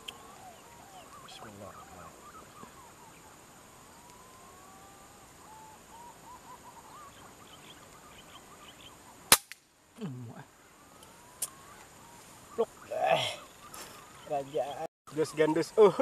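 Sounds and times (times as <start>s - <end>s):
whistled bird calls: 0.0s - 9.3s
gunshot: 9.3s - 9.6s.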